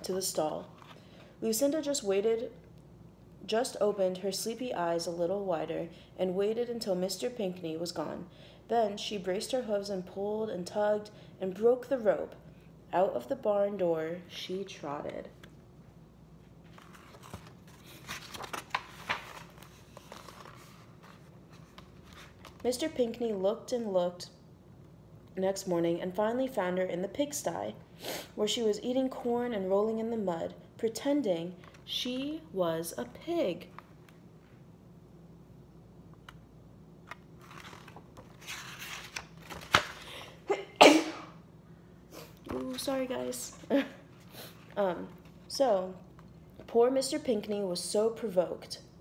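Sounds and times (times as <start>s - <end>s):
paper pages rustling: 0.6s - 1.2s, 16.4s - 22.8s, 37.1s - 40.1s
woman sneezing: 40.3s - 41.4s.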